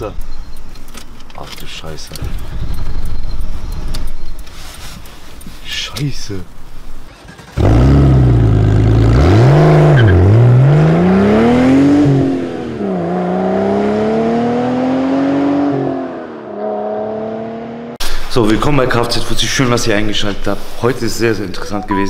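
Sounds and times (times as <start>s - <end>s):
car engine revving: 6.6s - 18.0s.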